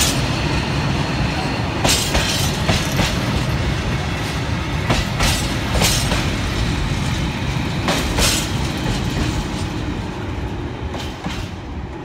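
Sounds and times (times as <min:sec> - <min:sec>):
low train rumble: 0:00.0 - 0:12.0
train wheels clacking over rail joints: 0:01.8 - 0:03.6, 0:04.2 - 0:09.9, 0:10.9 - 0:11.7.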